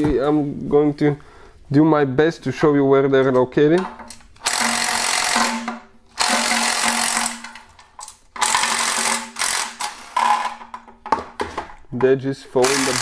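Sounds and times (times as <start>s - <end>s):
cordless power tool spinning socket: 4.4s - 5.6s, 6.2s - 7.6s, 8.4s - 10.5s, 12.6s - 13.0s.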